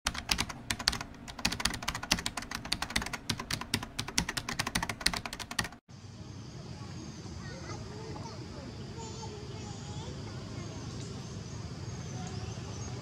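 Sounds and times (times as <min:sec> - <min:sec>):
keyboard typing clicks: 0:00.1 - 0:05.8.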